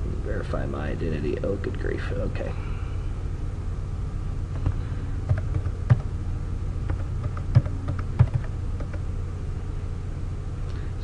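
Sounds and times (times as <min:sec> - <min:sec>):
low steady hum: 0:00.0 - 0:11.0
computer keyboard keys clicking: 0:06.9 - 0:09.0.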